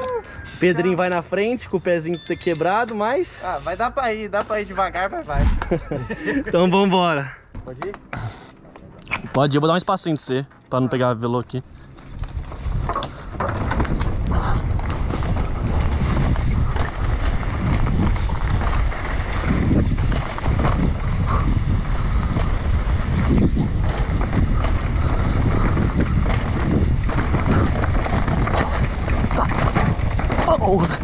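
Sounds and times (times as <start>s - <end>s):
bike knocking and rattling: 7.5s - 9.5s, 11.7s - 31.0s
tyres rumbling on dirt trail: 11.0s - 31.0s
wind buffeting microphone: 12.1s - 31.0s.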